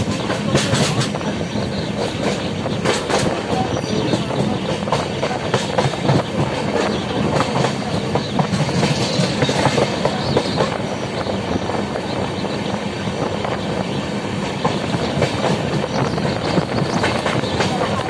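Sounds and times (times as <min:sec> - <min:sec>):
clicks and clatter over track: 0:00.0 - 0:01.3, 0:02.0 - 0:10.8, 0:14.6 - 0:18.0
train wheels rumbling on rail: 0:00.0 - 0:18.0.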